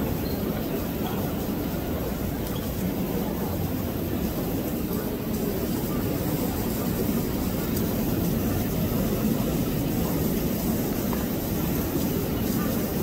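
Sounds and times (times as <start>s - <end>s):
low rumbling background noise: 0.0s - 13.0s.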